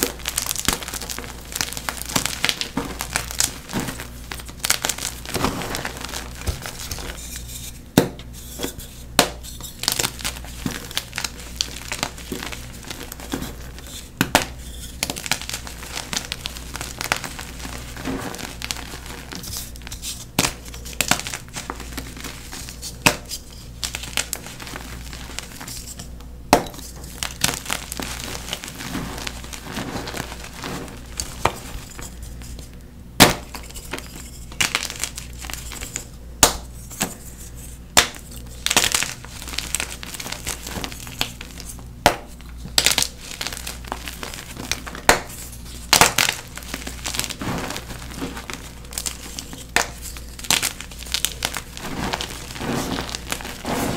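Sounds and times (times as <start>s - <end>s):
chalk cracking and snapping: 0.0s - 53.9s
chalk crunching and crumbling: 0.0s - 53.9s.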